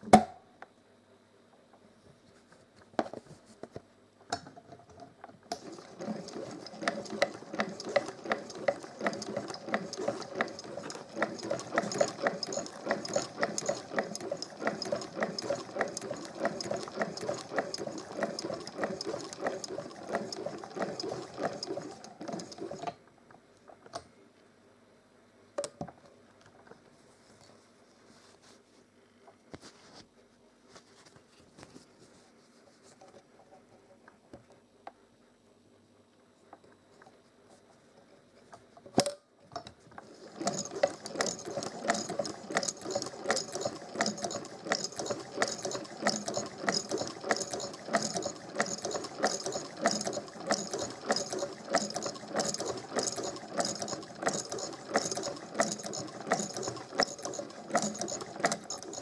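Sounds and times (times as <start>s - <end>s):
sewing machine clattering: 5.5s - 23.0s, 40.0s - 59.0s.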